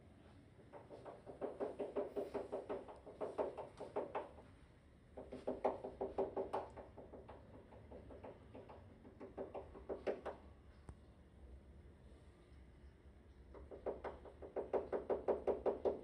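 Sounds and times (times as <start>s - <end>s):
rapid knocking through ceiling: 0.7s - 4.4s, 5.1s - 10.4s, 13.5s - 16.0s.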